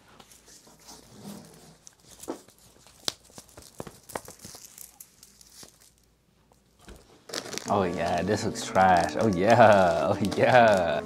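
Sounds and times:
plastic wrappers crinkling: 1.6s - 11.0s.

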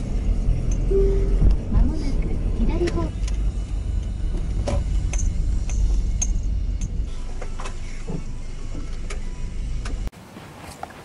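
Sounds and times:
car engine and road rumble: 0.0s - 11.0s
short high chirps: 0.9s - 1.5s.

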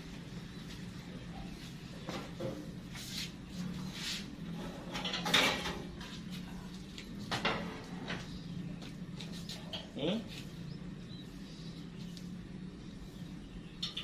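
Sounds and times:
wire rack clattering on metal: 4.6s - 5.9s.

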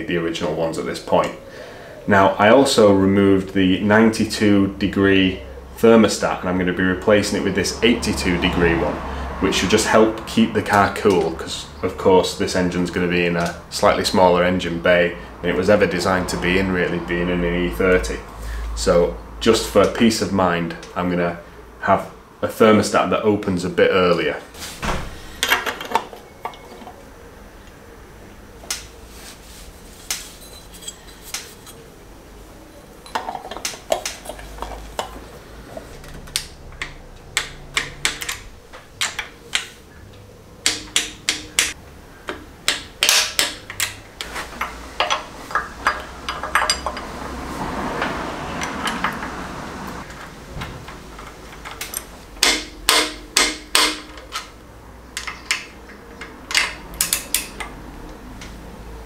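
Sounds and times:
metal parts and tools clinking: 25.3s - 27.0s, 30.2s - 31.9s, 33.0s - 39.6s, 40.6s - 47.4s, 51.2s - 57.8s.

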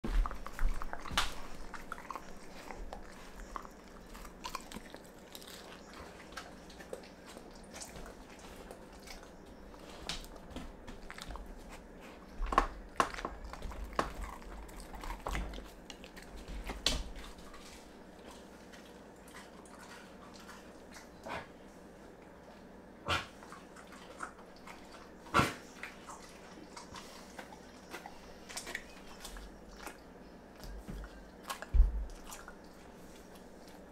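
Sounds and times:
dog chewing meat: 0.0s - 33.9s
soft low thumps: 31.7s - 32.2s.

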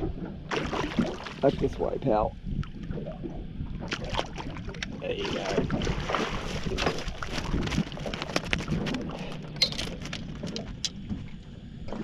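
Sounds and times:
fish thrashing in a boat: 3.8s - 11.3s.

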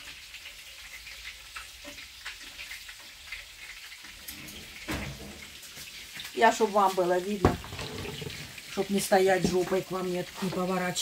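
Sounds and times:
food sizzling in a frying pan: 0.0s - 11.0s
knock: 7.4s - 8.4s.

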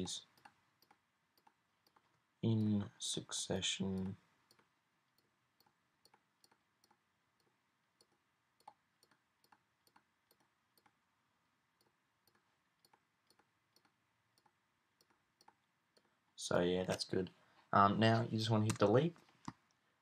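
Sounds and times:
computer mouse clicks: 0.2s - 2.8s, 4.0s - 11.0s, 11.8s - 16.1s.

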